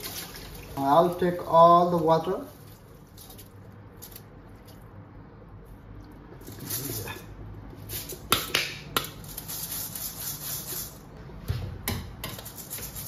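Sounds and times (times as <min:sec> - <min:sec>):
water trickling through strainer: 0:00.0 - 0:00.9.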